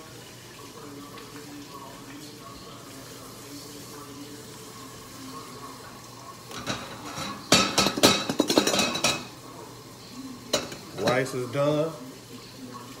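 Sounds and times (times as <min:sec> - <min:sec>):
faint kitchen background: 0:00.0 - 0:13.0
metal cookware clanking: 0:06.5 - 0:09.4, 0:10.5 - 0:11.6.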